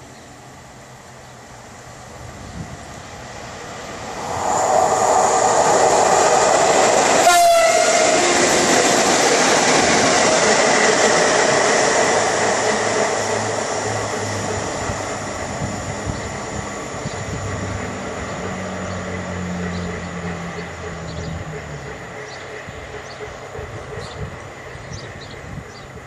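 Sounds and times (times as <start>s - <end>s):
electric locomotives passing: 0.3s - 26.0s.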